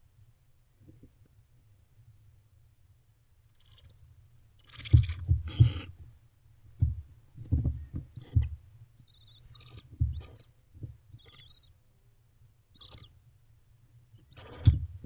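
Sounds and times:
high chittering calls: 4.6 - 5.8, 8.1 - 11.8, 12.7 - 13.2, 14.2 - 14.9
owl raspy hisses: 11.2 - 11.7, 14.3 - 14.8.

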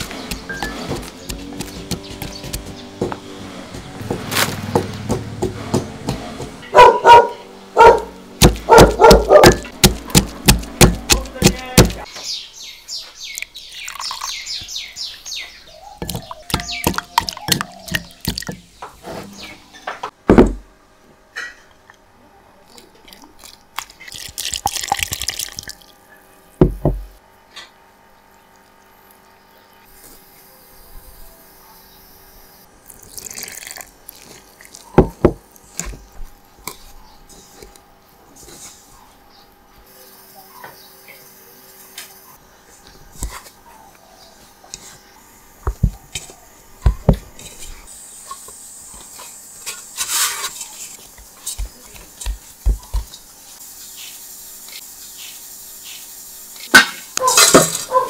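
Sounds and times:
wooden pestle pounding in mortar: 0.0 - 6.6, 8.4 - 12.1, 16.0 - 18.7, 51.6 - 53.2
liquid pouring into a bowl: 13.8 - 14.3, 23.1 - 26.0, 32.8 - 34.8.

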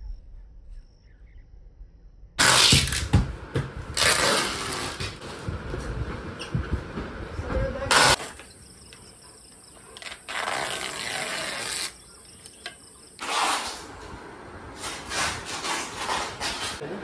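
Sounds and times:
insects chirring: 7.3 - 13.6.

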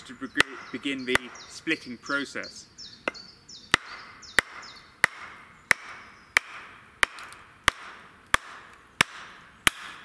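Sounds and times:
wooden mallet knocking hatchet: 0.3 - 1.6.

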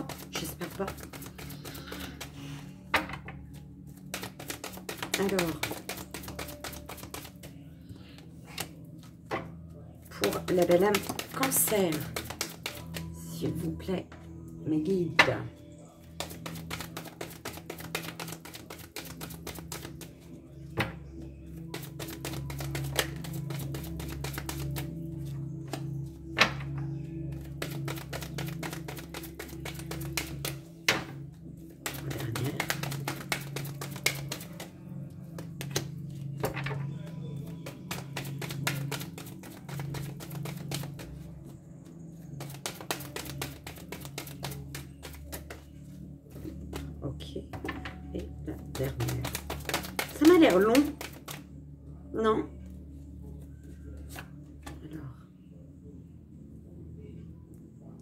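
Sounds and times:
cards being shuffled: 0.0 - 2.5, 3.5 - 7.6, 10.2 - 13.2, 16.0 - 20.2, 21.5 - 26.7, 27.3 - 41.3, 42.4 - 47.0, 48.6 - 51.5, 54.0 - 54.8
background music with low tones: 0.0 - 58.0.

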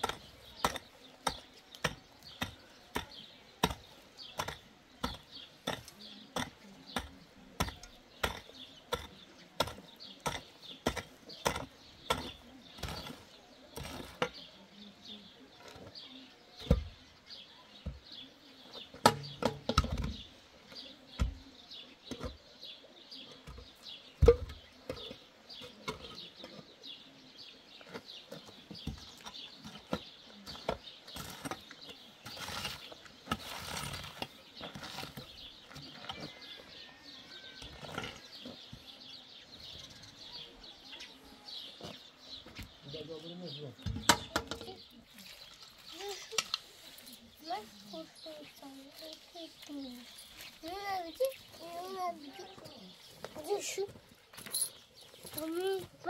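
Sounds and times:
mattock digging stony earth: 0.0 - 21.4, 27.8 - 39.7, 43.7 - 56.0
birds chirping: 0.0 - 56.0
concrete blocks thumping down: 23.4 - 25.2.

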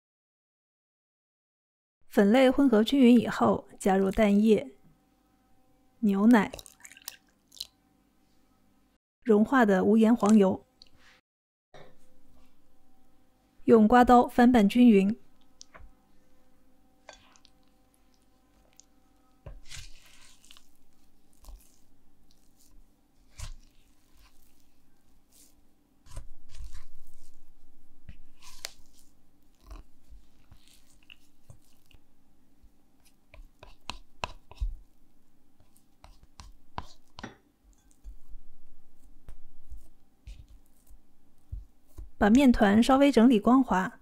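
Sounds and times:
spatula folding sticky dough: 17.0 - 43.1
spatula scraping glass bowl: 17.1 - 27.4, 28.1 - 32.0.

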